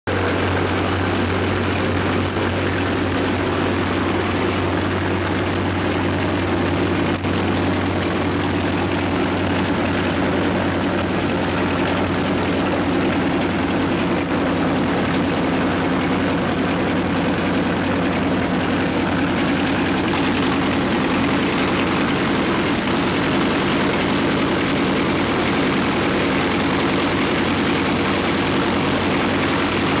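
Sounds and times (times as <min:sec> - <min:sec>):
radial piston engine running: 0:00.1 - 0:30.0.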